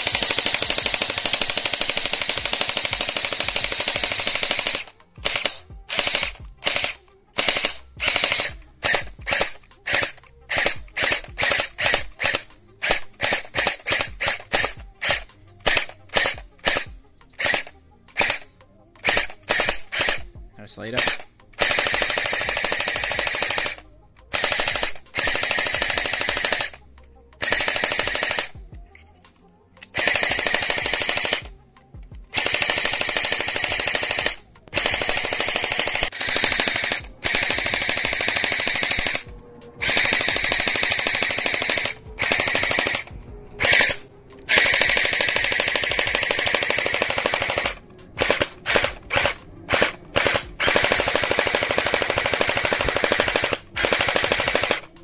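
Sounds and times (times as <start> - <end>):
toy blaster firing full-auto: 0.0 - 20.3, 21.0 - 26.8, 27.4 - 28.6, 29.8 - 31.6, 32.3 - 55.0.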